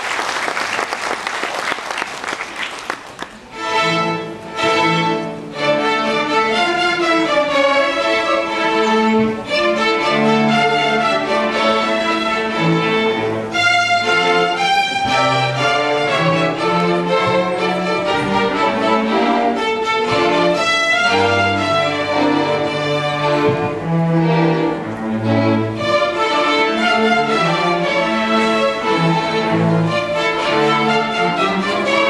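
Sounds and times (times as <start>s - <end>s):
audience applause: 0.0s - 3.5s
string orchestra playing: 2.7s - 32.0s.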